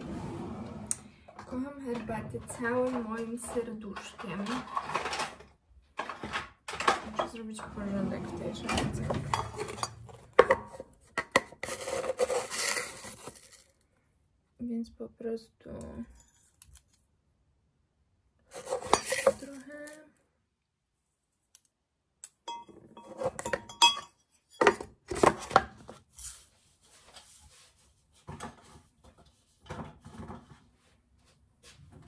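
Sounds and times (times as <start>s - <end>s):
kitchenware clattering: 1.4s - 13.3s, 18.5s - 19.6s, 22.5s - 25.6s
tea strainer and spoon clinking mug: 22.5s - 24.2s.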